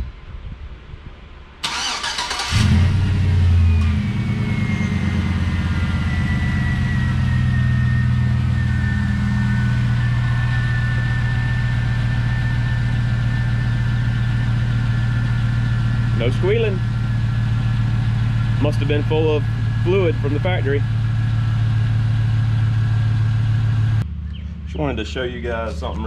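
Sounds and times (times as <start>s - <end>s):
engine starting and idling: 1.6s - 8.0s, 9.9s - 23.8s
faint high whine: 3.3s - 20.8s.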